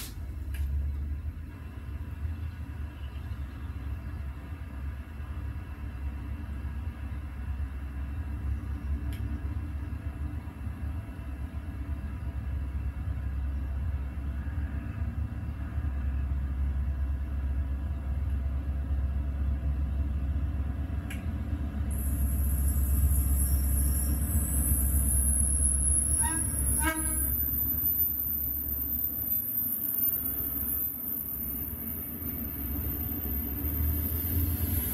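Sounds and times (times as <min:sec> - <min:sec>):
diesel train rumble: 0:00.0 - 0:34.9
high-pitched whine: 0:21.9 - 0:34.9.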